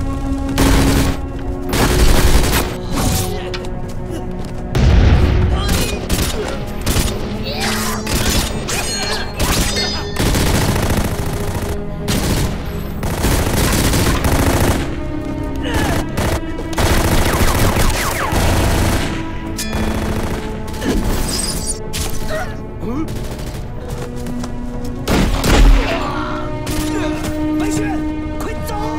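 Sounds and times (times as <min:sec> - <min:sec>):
dramatic music score: 0:00.0 - 0:28.9
rapid gunfire volleys: 0:00.3 - 0:02.8, 0:05.7 - 0:07.4, 0:09.6 - 0:15.1, 0:15.8 - 0:21.1, 0:23.1 - 0:23.8.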